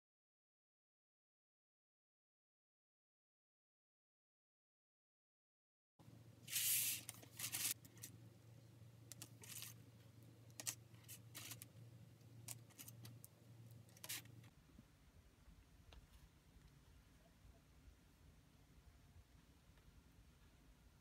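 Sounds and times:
low steady hum: 0:06.0 - 0:21.0
rustling scrape: 0:06.5 - 0:08.1.

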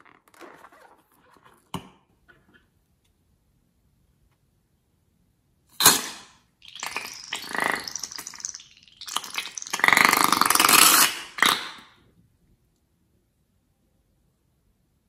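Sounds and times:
slime sputtering and squelching: 0:05.8 - 0:12.0.

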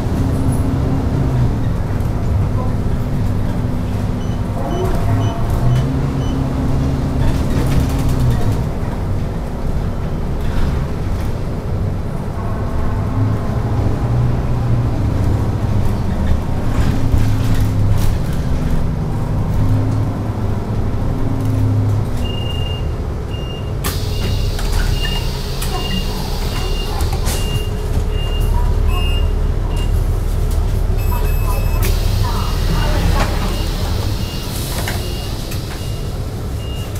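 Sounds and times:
bus engine running: 0:00.0 - 0:36.9
high warning beep: 0:23.4 - 0:30.0, 0:31.0 - 0:32.0, 0:33.3 - 0:36.9.

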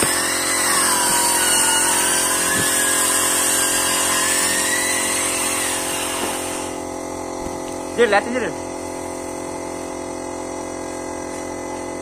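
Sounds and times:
power tool whining: 0:00.0 - 0:08.0.

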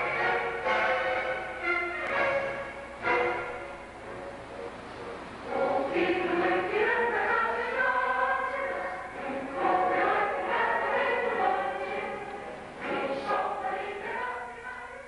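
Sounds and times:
choir singing: 0:00.0 - 0:03.5, 0:05.5 - 0:15.0
orchestral accompaniment: 0:00.0 - 0:08.0.

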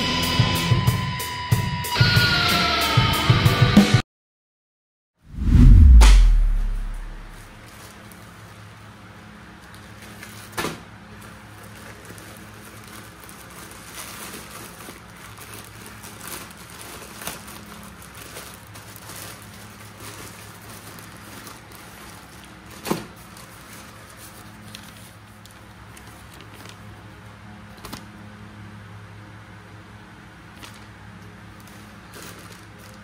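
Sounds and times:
steady low hum: 0:05.3 - 0:07.6.

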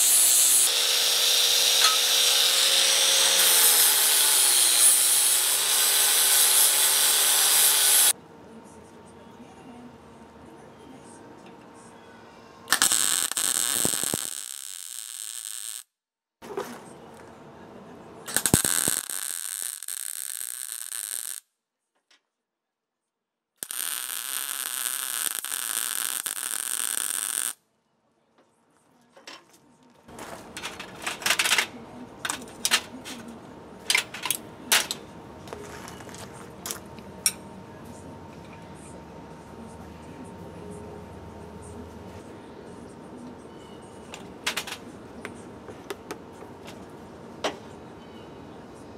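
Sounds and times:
welder arc crackling and hissing: 0:00.0 - 0:08.2, 0:12.7 - 0:15.9, 0:18.3 - 0:21.4, 0:23.6 - 0:27.6.

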